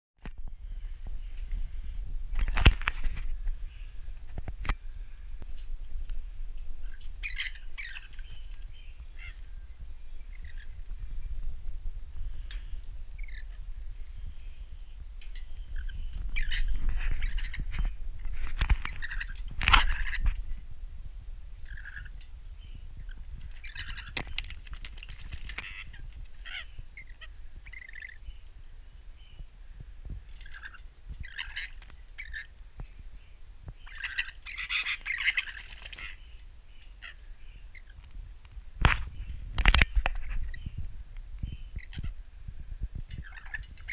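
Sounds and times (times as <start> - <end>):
bird chirping: 6.6 - 11.5, 12.2 - 20.6, 21.6 - 29.5, 30.3 - 38.1, 39.0 - 42.2, 43.0 - 43.9.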